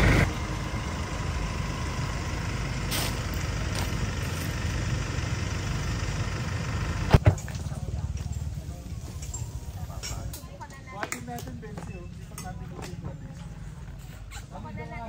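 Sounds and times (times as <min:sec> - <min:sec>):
car engine idling: 0:00.0 - 0:09.9.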